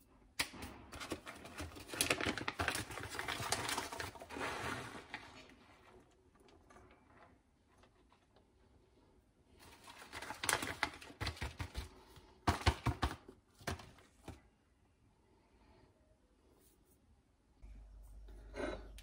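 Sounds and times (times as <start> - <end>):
plastic bag crinkling: 1.0 - 5.7.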